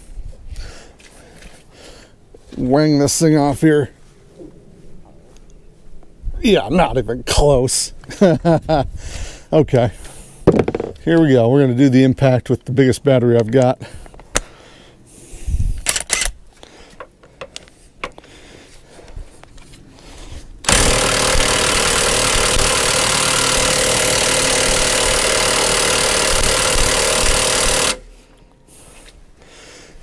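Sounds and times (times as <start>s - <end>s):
impact wrench hammering: 20.7s - 28.2s.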